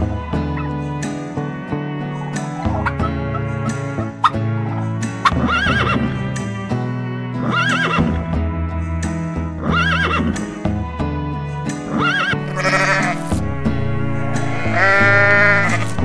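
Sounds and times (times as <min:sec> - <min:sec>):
slow sustained chord music: 0:00.0 - 0:09.7, 0:10.6 - 0:16.0
goat bleating: 0:11.9 - 0:13.4, 0:14.3 - 0:16.0.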